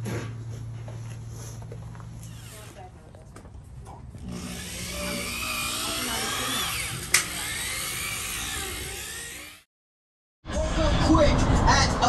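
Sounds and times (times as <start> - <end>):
car polisher motor whine: 4.2 - 9.6.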